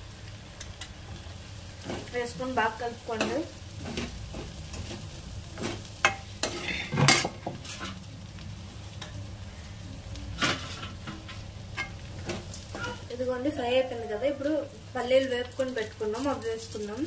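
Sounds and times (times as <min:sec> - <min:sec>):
light frying sizzle: 0:00.0 - 0:17.0
metal spoon scraping a pan: 0:03.1 - 0:08.1, 0:10.4 - 0:13.1.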